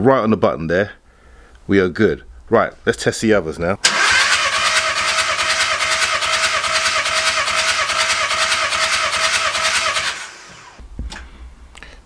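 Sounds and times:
engine cranking on starter motor: 3.8 - 10.8.

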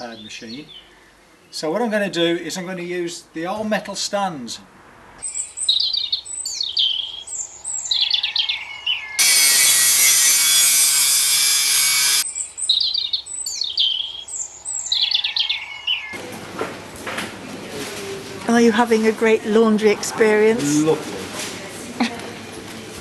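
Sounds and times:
angle grinder cutting metal: 9.2 - 12.2
even background noise: 15.9 - 23.0.

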